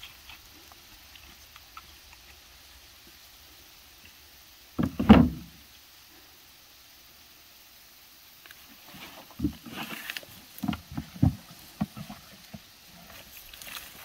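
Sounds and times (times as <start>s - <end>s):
plastic basket thumps and knocks: 4.8s - 5.6s.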